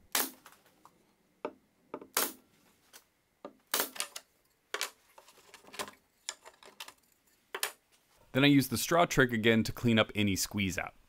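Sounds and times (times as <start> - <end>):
wooden blocks clicking and knocking: 3.5 - 7.8.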